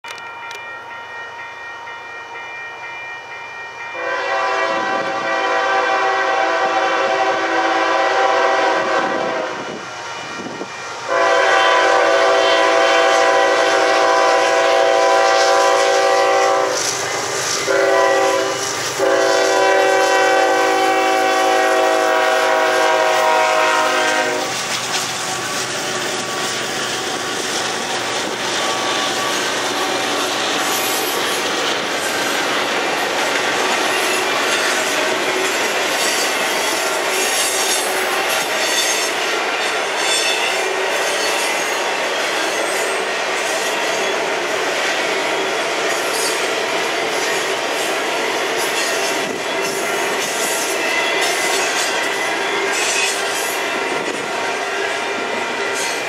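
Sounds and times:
locomotive air horn blasts: 3.9s - 24.7s
freight cars rumbling on rails: 7.2s - 56.0s.

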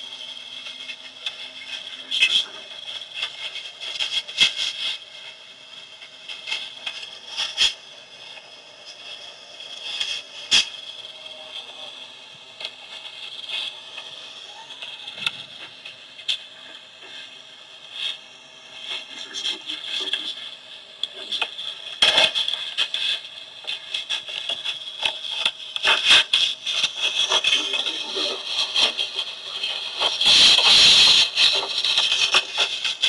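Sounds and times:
crackling and clicking: 18.8s - 33.0s.

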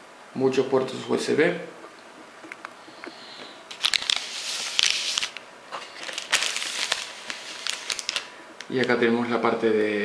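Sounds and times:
plastic bag crinkling: 3.7s - 8.4s.

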